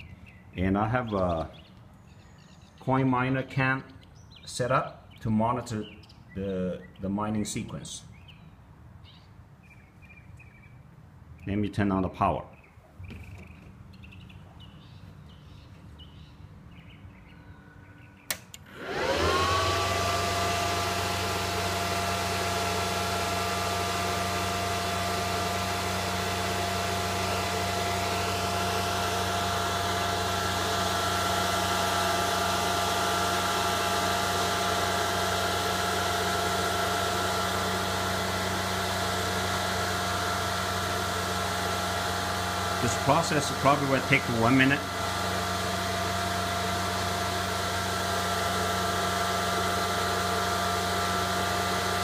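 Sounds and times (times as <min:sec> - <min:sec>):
cooling fans whirring: 0:13.3 - 0:52.0
click: 0:18.3 - 0:18.6.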